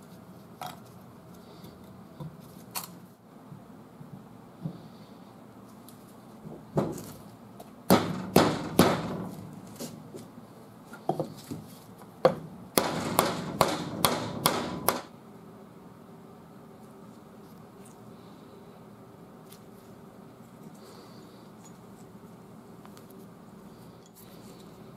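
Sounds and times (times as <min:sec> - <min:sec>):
hammer striking wooden block: 0:12.3 - 0:15.1.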